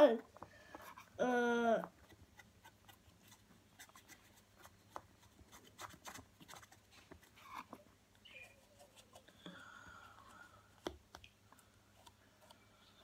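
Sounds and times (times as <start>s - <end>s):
colouring tool scratching cardboard: 2.0s - 7.7s.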